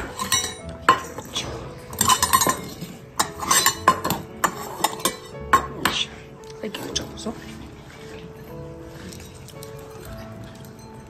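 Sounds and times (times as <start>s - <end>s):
metal bowls clinking on wooden table: 0.0s - 7.1s.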